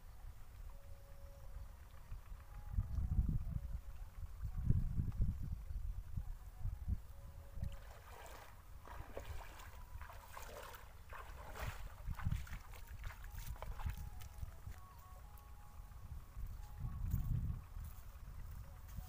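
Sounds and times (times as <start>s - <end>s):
wind rumbling on microphone: 0.0s - 19.0s
legs splashing through water: 7.7s - 14.4s.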